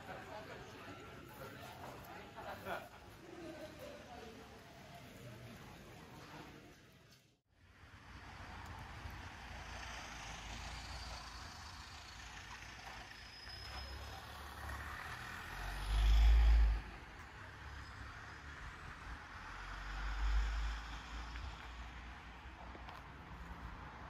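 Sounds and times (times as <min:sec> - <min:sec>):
distant traffic: 0:00.0 - 0:24.0.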